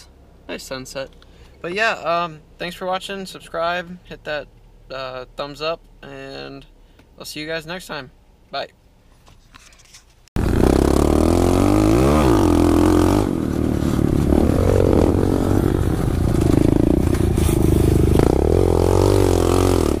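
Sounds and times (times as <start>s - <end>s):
small motorbike engines revving: 10.4s - 20.0s
clatter from rough ground: 15.9s - 18.4s.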